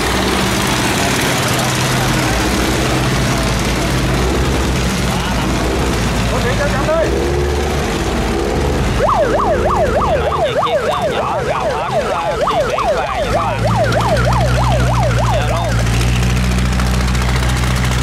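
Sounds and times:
boat engines running: 0.0 - 18.0
electronic siren yelping: 8.9 - 16.0.

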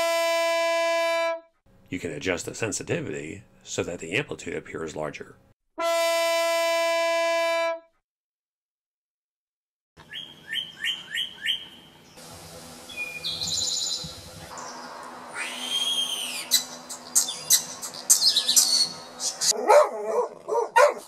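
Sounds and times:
bird whistled song with trill: 10.1 - 11.8, 12.9 - 19.5.

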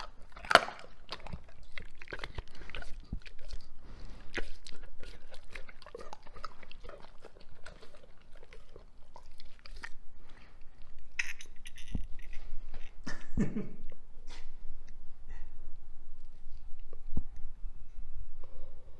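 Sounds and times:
dog licking and chewing meat: 0.0 - 13.0.

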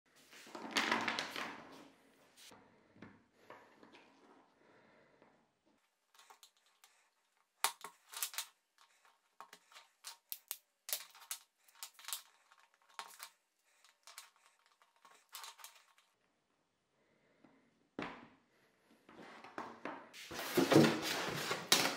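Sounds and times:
plastic pipe clips clicking: 7.6 - 13.3.

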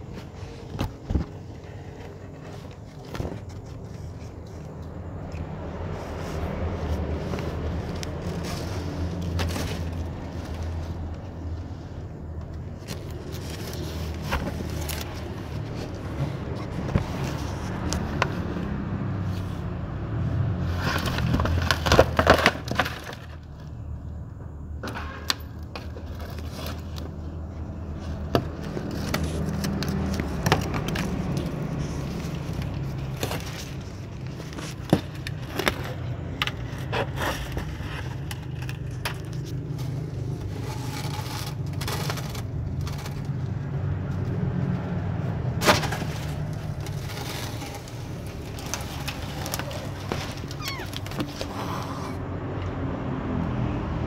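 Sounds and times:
wooden scraps knocking and scraping: 20.8 - 23.6, 24.8 - 43.4, 45.6 - 51.9.

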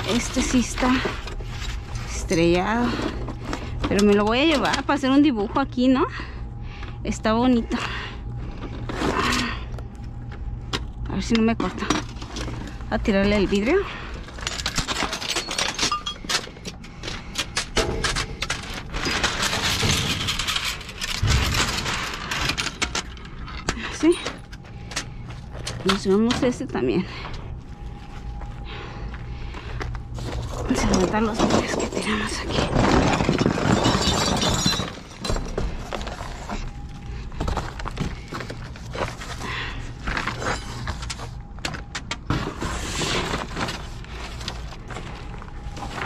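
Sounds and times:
broken glass clinking and crunching: 14.2 - 16.8, 17.5 - 25.0, 30.5 - 39.4
broken glass clinking and scraping: 14.4 - 16.5, 30.7 - 36.6.

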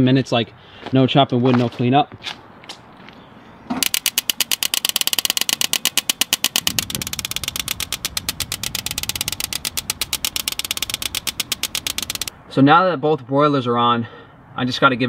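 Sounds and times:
gas spark igniter clicking: 3.8 - 12.3.

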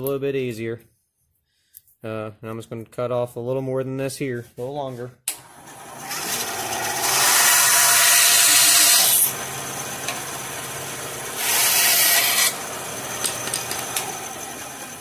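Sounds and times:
bandsaw cutting wood: 5.4 - 15.0.

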